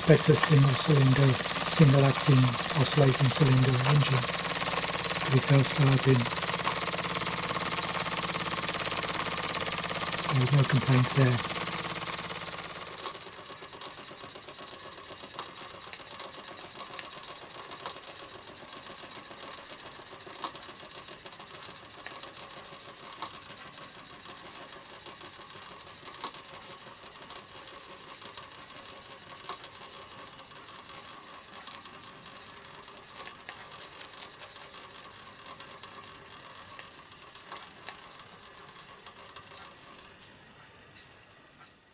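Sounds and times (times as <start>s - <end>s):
steam engine exhaust puffs: 0.0s - 13.0s.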